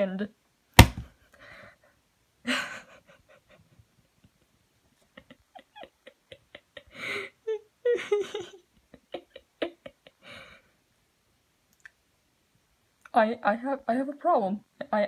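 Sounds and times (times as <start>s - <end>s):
person giggling: 2.5s - 4.4s, 5.0s - 10.7s.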